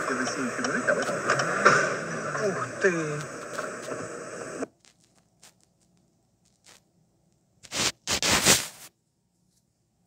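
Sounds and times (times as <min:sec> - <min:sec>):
rustling scraping near microphone: 0:07.6 - 0:09.0.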